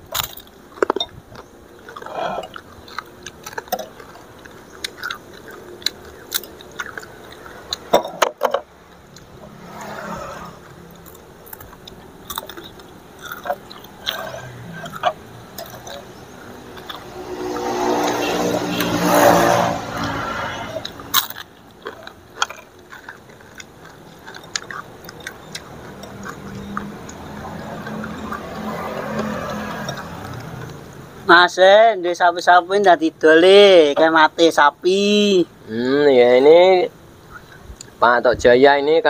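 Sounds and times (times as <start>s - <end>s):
chewing and crunching: 0.0s - 31.3s
whooshing swell: 9.3s - 11.0s.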